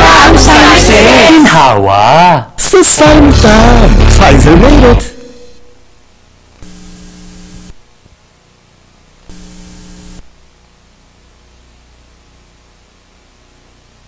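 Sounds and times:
buzzing static bursts: 0.0 - 1.4, 2.6 - 11.6
low mains hum: 0.0 - 14.0
static hiss: 2.6 - 14.0.

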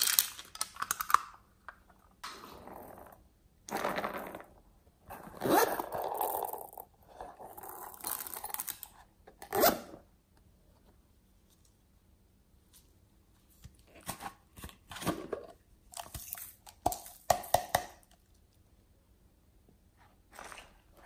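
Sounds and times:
metal zipper being pulled: 5.1 - 6.8, 9.4 - 10.0.

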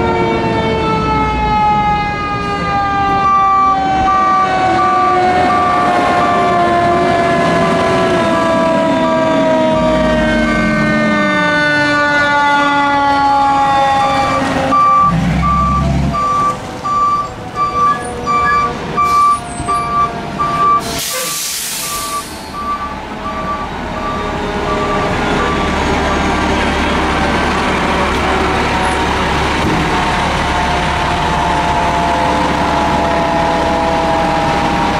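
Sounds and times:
siren winding down: 0.0 - 34.9
truck engine: 0.0 - 34.9
reversing beeper: 1.1 - 6.5, 13.8 - 34.9
air brakes hissing: 20.8 - 22.7.

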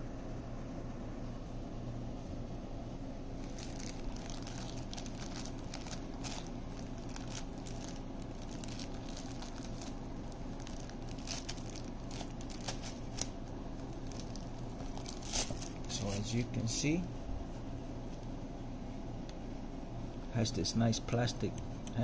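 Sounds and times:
steady low hum: 0.0 - 22.0
plastic bag crinkling: 3.4 - 16.3.

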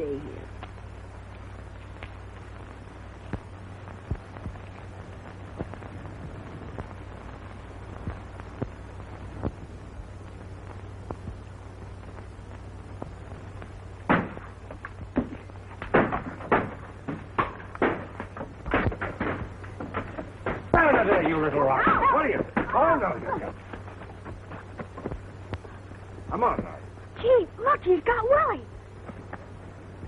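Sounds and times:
film soundtrack hum and hiss: 0.0 - 30.0
crackle clicks: 0.4 - 27.3, 28.1 - 30.0
irregular thumps and knocks: 14.1 - 25.8.

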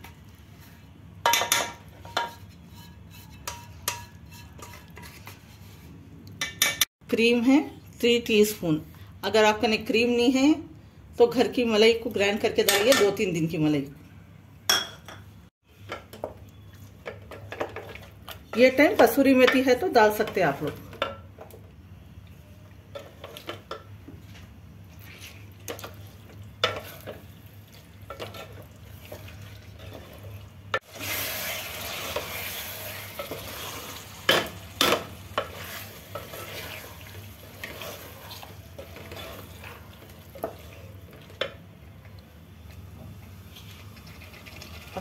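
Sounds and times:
wooden spatula scraping metal pot: 2.1 - 6.0, 26.6 - 27.3, 28.1 - 33.9, 34.8 - 41.5
gravy sizzling: 23.0 - 45.0.

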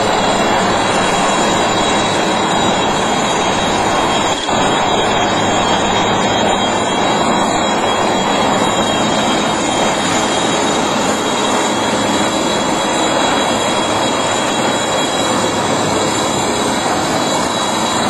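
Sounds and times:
helicopter rotor and turbine noise: 0.0 - 18.0
thin high whine: 0.0 - 18.0.

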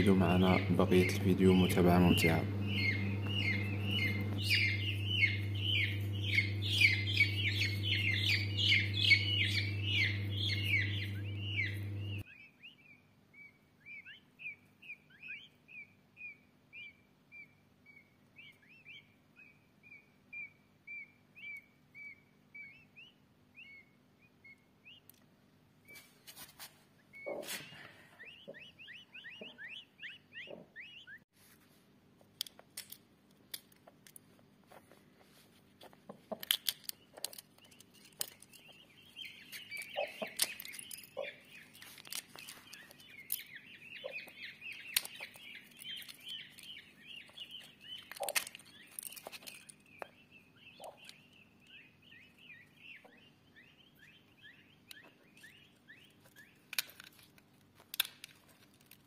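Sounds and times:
chicks peeping: 0.0 - 25.2, 25.9 - 31.2, 34.7 - 56.9
eggshell clicks: 36.3 - 50.1, 56.3 - 59.0.

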